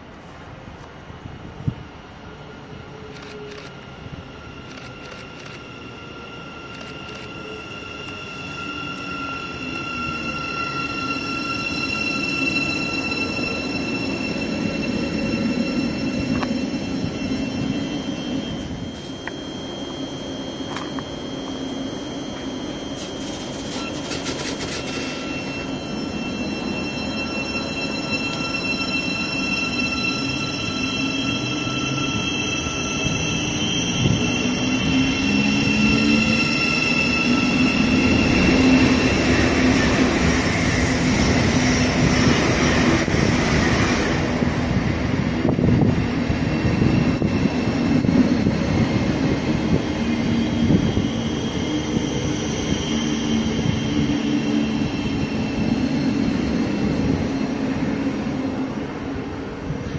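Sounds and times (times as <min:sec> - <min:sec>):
wheel and rail noise: 0:02.8 - 0:59.9
clicks of train wheels: 0:06.7 - 0:08.3, 0:20.7 - 0:21.1, 0:22.3 - 0:25.6
train traction motors whining: 0:18.5 - 0:43.3.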